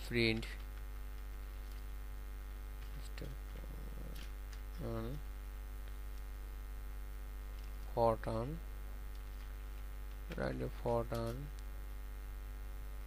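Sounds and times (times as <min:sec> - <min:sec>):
electrical mains hum: 0:00.0 - 0:13.0
murmured vocal sound: 0:03.2 - 0:05.2.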